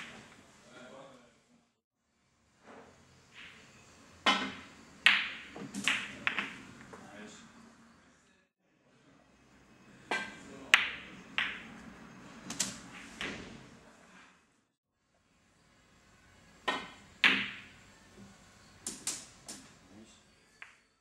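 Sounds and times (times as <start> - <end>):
snooker balls clacking: 0.0 - 0.4, 3.4 - 3.6, 4.2 - 7.0, 10.1 - 13.6, 16.6 - 17.8.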